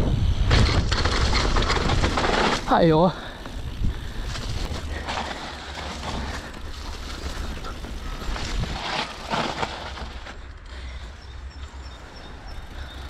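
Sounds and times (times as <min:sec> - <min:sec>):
wind rumbling on microphone: 0:00.0 - 0:10.1
bike tyres and rattle on dirt: 0:00.0 - 0:13.0.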